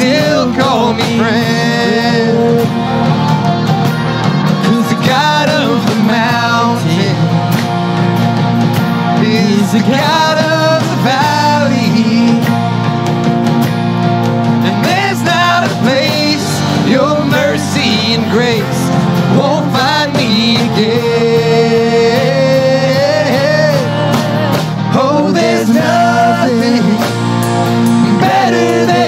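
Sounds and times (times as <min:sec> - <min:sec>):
person singing lead vocal: 0:00.0 - 0:07.6, 0:09.0 - 0:12.7, 0:14.5 - 0:29.0
drum kit: 0:00.0 - 0:29.0
live band playing: 0:00.0 - 0:29.0.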